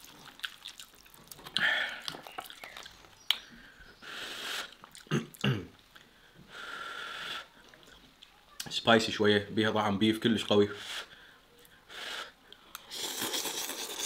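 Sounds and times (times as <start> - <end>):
chewing: 0.0 - 3.5, 4.6 - 6.0, 12.5 - 14.0
person slurping noodles: 12.9 - 14.0.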